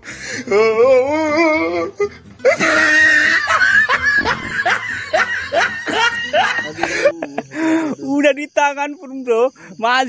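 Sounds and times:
men laughing: 0:01.6 - 0:08.2.

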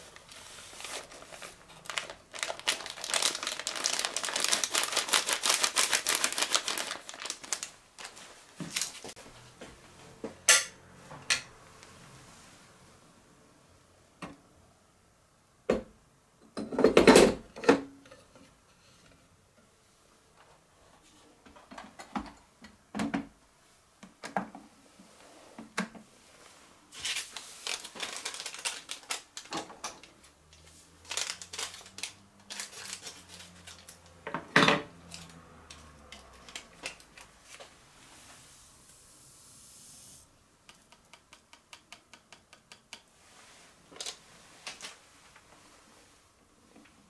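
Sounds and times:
yeast pouring hiss: 0:38.5 - 0:40.3.

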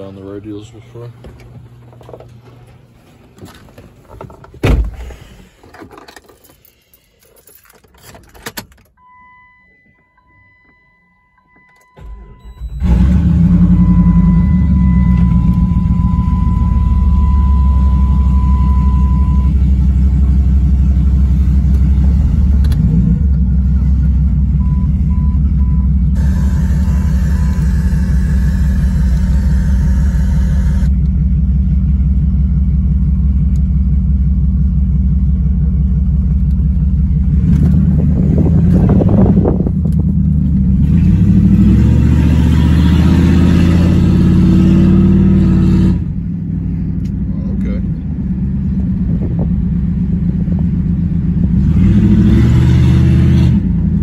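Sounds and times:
short beeps: 0:09.0 - 0:13.0, 0:13.7 - 0:19.6, 0:24.6 - 0:30.9
car warning chime: 0:09.0 - 0:13.1, 0:13.7 - 0:19.5, 0:24.6 - 0:30.9
car engine idling loudly: 0:19.4 - 0:40.8.

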